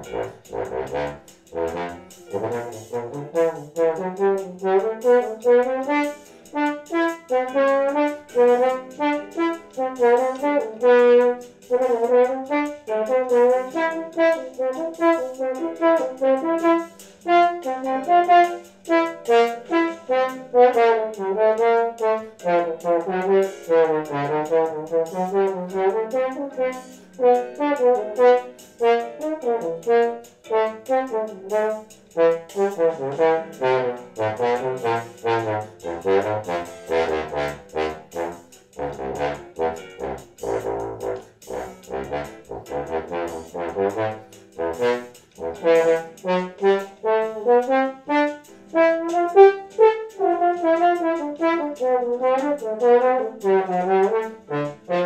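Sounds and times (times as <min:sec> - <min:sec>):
bass trombone solo: 0:00.0 - 0:55.0
bossa nova backing track: 0:00.0 - 0:55.0.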